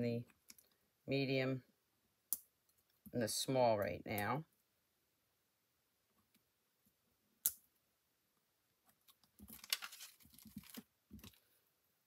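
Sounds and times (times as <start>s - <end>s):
plastic sheet crinkling: 9.4s - 11.4s.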